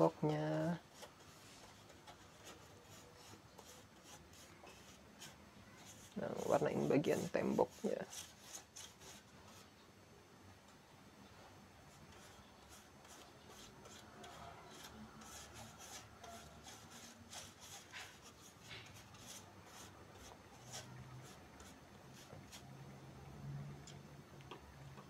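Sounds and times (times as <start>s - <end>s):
paintbrush swishing: 0.9s - 9.7s.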